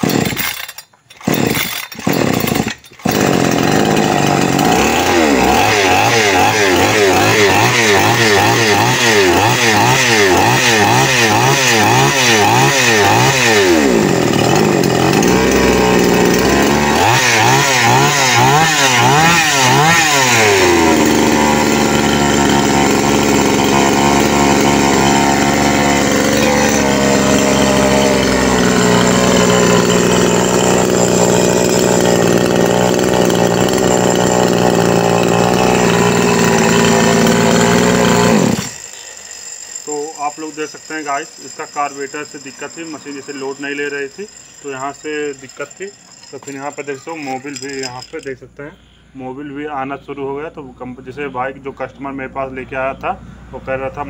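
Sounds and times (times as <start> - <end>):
chainsaw engine revving: 0.0 - 48.3.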